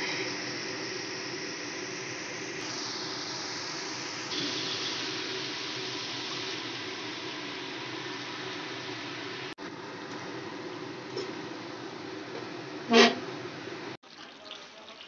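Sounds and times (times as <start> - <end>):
onions sizzling in hot oil: 0.0 - 11.8.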